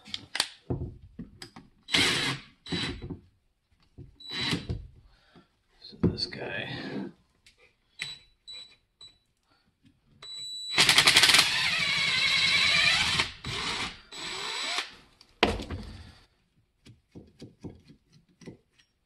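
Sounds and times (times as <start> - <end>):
cordless drill driving screw: 1.9 - 3.0, 4.3 - 4.7, 10.7 - 15.0.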